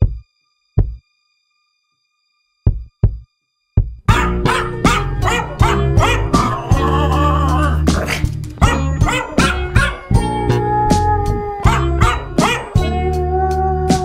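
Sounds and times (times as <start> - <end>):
dog bark samples melody: 4.1 - 14.0
steady low bass line: 4.1 - 14.0.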